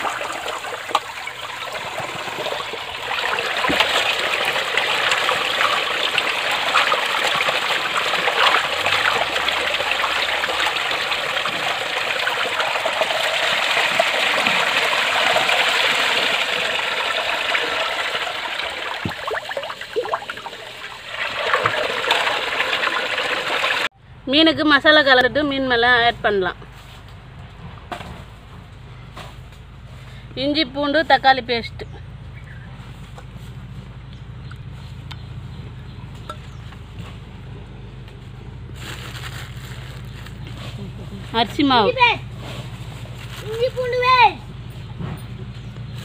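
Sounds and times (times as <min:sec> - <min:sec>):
water pouring over rim: 0:00.0 - 0:23.9
water trickling and sloshing: 0:00.0 - 0:23.9.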